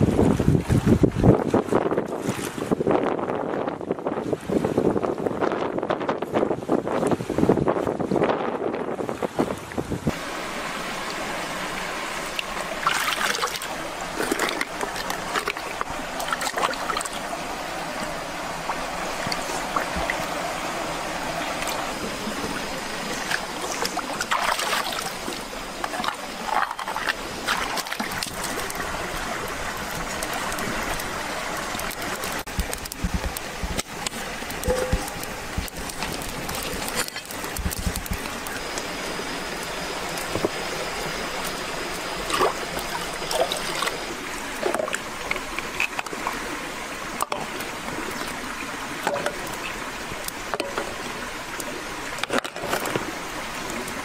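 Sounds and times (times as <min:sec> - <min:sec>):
stream flowing over rocks: 0:00.0 - 0:54.0
small splashes and clicks: 0:12.2 - 0:17.2, 0:21.5 - 0:39.0, 0:41.4 - 0:46.4, 0:47.2 - 0:54.0.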